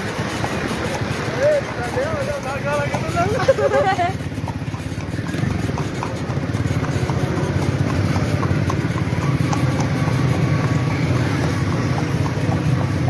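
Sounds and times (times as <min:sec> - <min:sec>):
horse hooves clip-clopping on road: 0:00.0 - 0:13.0
motorbike engine running: 0:00.0 - 0:13.0.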